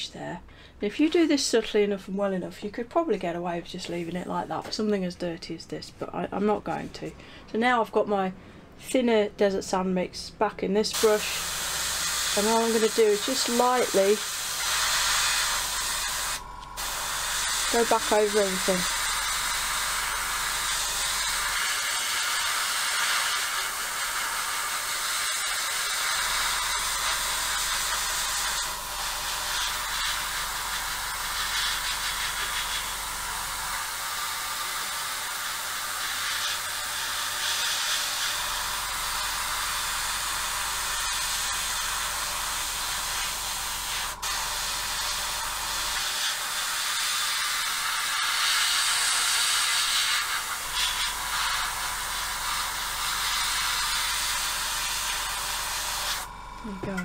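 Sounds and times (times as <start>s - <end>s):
airbrush spraying air hiss: 10.9s - 56.4s.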